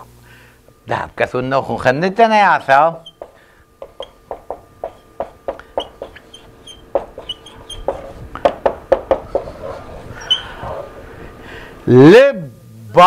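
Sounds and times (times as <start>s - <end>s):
marker squeaking on whiteboard: 3.0s - 8.2s, 9.1s - 10.6s
marker tapping on whiteboard: 3.1s - 6.2s, 6.9s - 9.5s.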